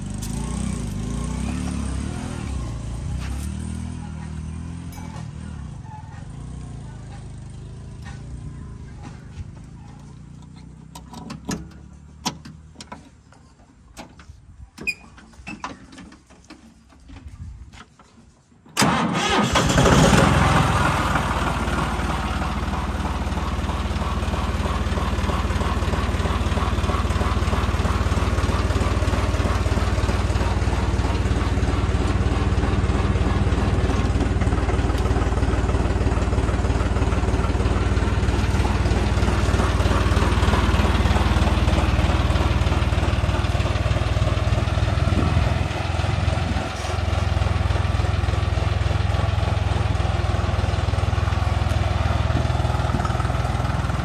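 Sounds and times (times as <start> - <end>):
tractor diesel engine running: 0.0 - 17.9, 18.8 - 54.0.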